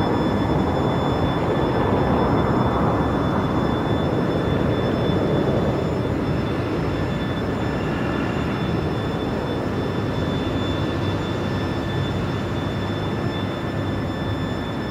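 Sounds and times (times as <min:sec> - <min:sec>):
jet engines rumbling: 0:00.0 - 0:14.9.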